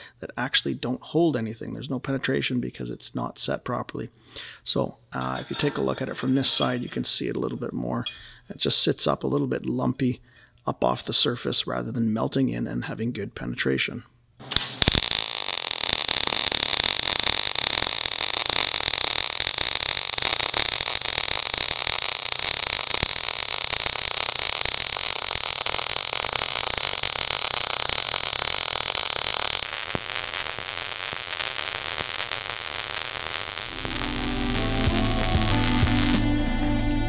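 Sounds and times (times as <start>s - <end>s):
welding arc crackling hiss: 14.4s - 37.0s.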